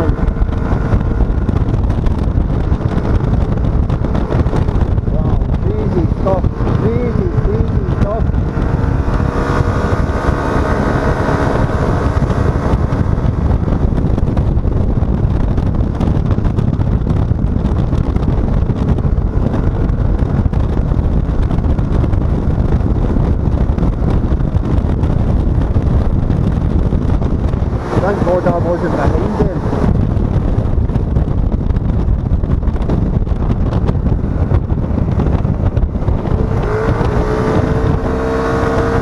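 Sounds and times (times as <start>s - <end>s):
wind rushing over microphone: 0.0s - 39.0s.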